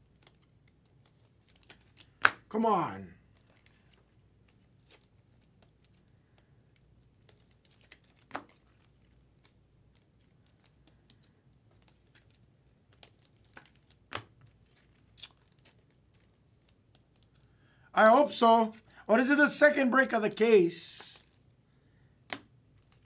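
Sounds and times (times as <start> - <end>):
wrapper crinkling and tearing: 3.3 - 17.5.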